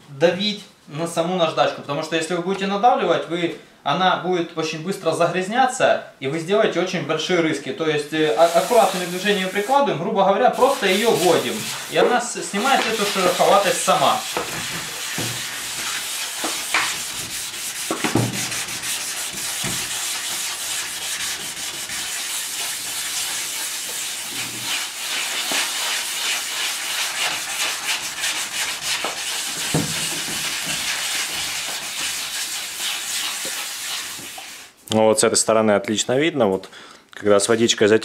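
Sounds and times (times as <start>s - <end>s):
wet sandpaper scratching: 8.3s - 9.9s, 10.6s - 34.7s.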